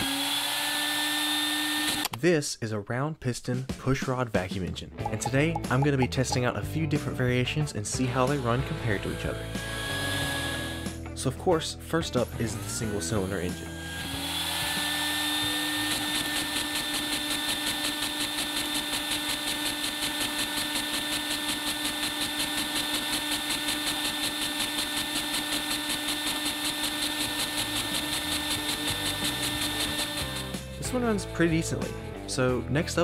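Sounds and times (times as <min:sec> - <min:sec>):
vacuum cleaner whine: 0:00.0 - 0:02.0, 0:09.3 - 0:10.9, 0:12.9 - 0:30.5
small engine pulsing: 0:09.0 - 0:11.0, 0:12.6 - 0:30.8.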